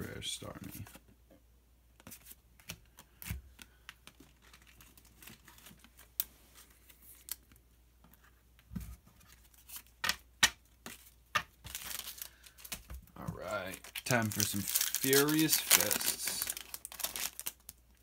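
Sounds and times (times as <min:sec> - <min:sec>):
trading cards shuffled: 0:10.9 - 0:17.2.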